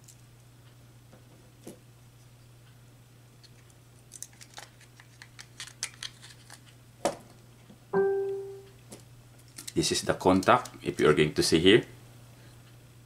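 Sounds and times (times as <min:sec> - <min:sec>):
plastic parts clicking and rattling: 0:03.4 - 0:06.7, 0:09.4 - 0:11.1.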